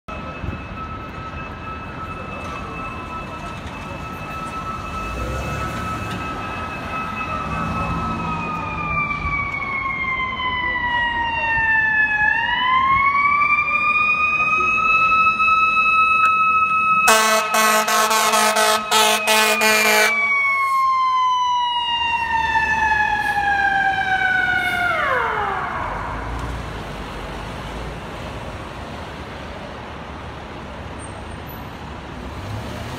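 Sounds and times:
city traffic rumble: 0.1s - 32.9s
emergency vehicle siren: 0.1s - 32.9s
air horn blasts: 17.1s - 20.8s.

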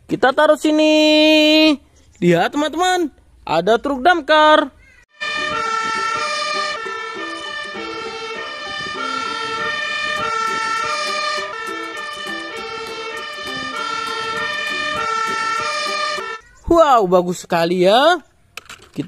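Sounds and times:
fire engine siren: 5.2s - 16.4s.

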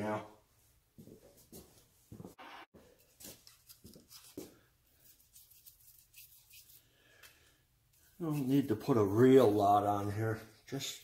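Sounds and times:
faint hand rubbing strokes: 4.0s - 6.9s, 7.9s - 10.6s.

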